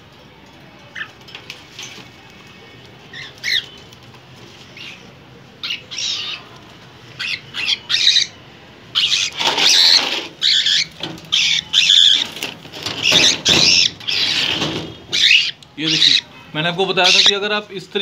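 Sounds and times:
bird harsh calls: 3.1s - 3.8s, 4.7s - 6.5s, 7.1s - 17.5s
wings flapping against wire bars: 12.1s - 15.1s.

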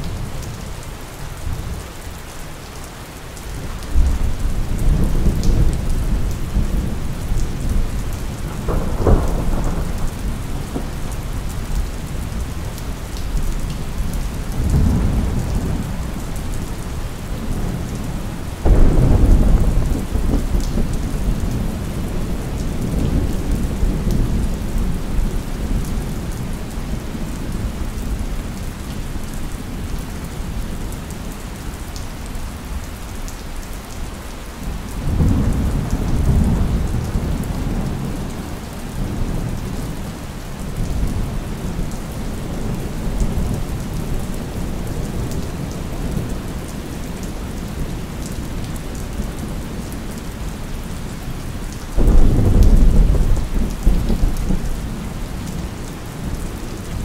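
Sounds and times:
steady rain falling: 0.0s - 57.0s
rolling thunder rumble: 3.9s - 26.6s, 52.0s - 55.0s
thunderclap: 8.4s - 11.4s, 18.6s - 22.1s, 52.0s - 54.7s.

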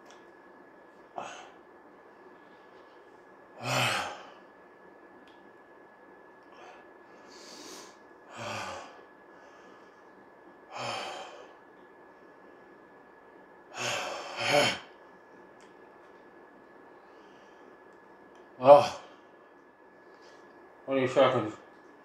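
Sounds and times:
man breathing hard: 6.5s - 11.6s.

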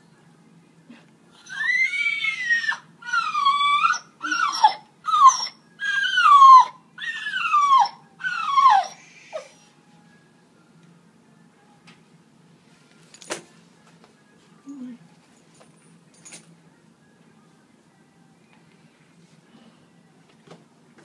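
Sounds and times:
dog whining: 1.4s - 9.8s.

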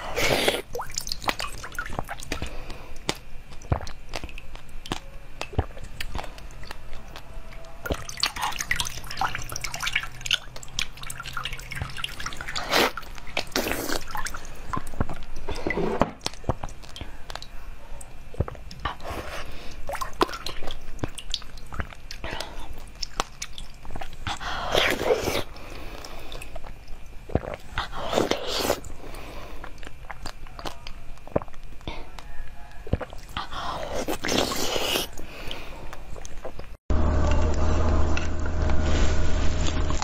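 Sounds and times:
wet mouth eating sounds: 0.0s - 36.8s.

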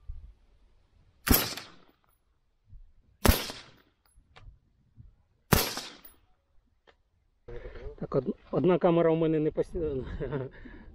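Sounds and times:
suppressed rifle shots: 1.2s - 2.0s, 3.2s - 3.8s, 5.5s - 6.2s.

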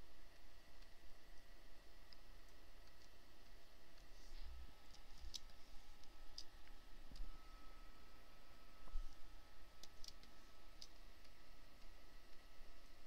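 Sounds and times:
computer mouse clicks: 9.8s - 11.4s.

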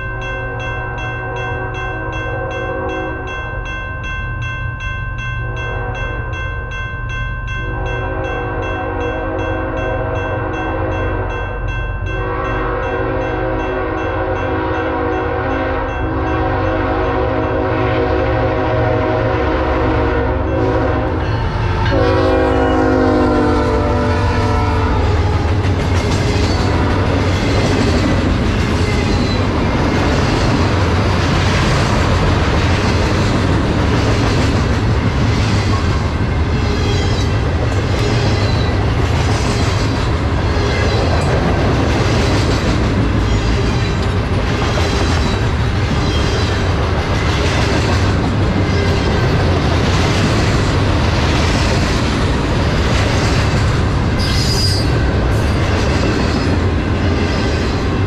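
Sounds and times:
train horn blasts: 0.5s - 3.4s, 5.5s - 6.3s, 7.6s - 11.5s, 12.1s - 25.6s
diesel locomotive rumble: 12.0s - 58.0s
train wheels clattering on rail: 24.2s - 58.0s.

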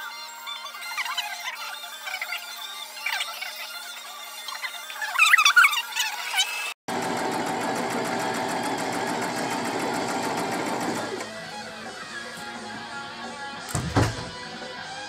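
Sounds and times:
sewing machine stitching: 6.9s - 11.3s.

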